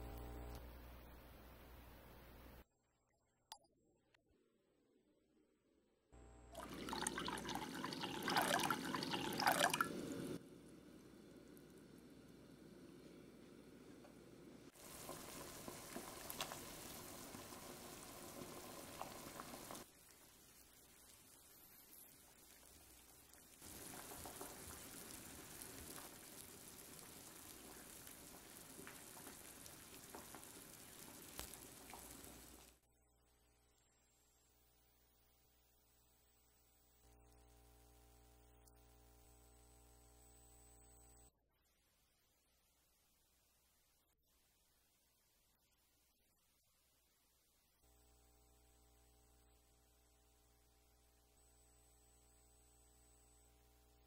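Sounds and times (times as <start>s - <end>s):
water pouring into clay pot: 6.6s - 10.4s
hot water sizzling hiss: 6.6s - 32.9s.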